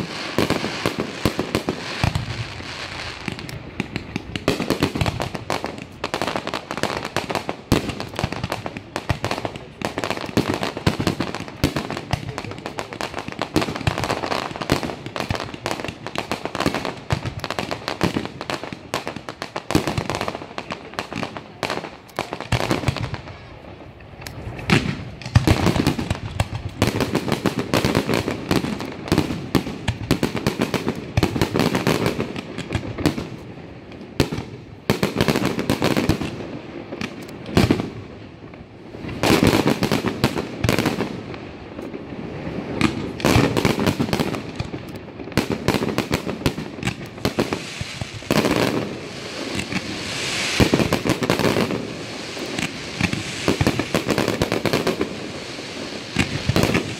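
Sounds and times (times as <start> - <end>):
fireworks bursting and crackling: 0.0 - 56.9.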